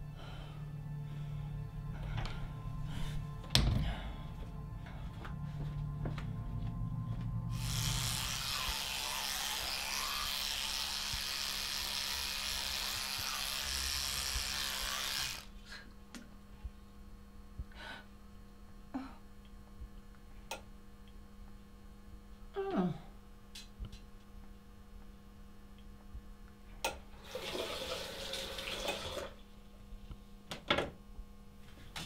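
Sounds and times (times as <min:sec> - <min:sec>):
low steady hum: 0:00.0 - 0:32.0
toothbrush scrubbing teeth: 0:07.6 - 0:15.5.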